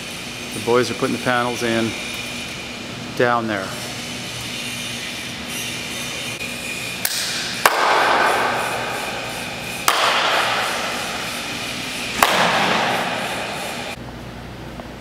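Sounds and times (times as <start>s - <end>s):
hand claps with long echo: 7.0s - 8.7s, 9.8s - 10.8s, 12.2s - 13.3s.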